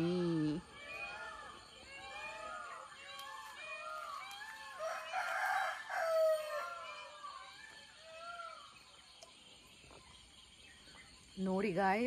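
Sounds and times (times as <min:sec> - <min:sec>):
birds calling: 0:00.0 - 0:12.0
rooster crowing: 0:00.9 - 0:07.5.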